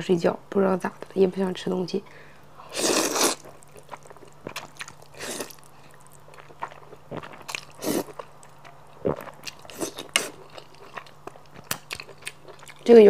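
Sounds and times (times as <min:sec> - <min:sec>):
person slurping noodles: 0:02.7 - 0:03.6, 0:05.2 - 0:05.6, 0:07.1 - 0:08.2
wet chewing clicks: 0:03.2 - 0:13.0.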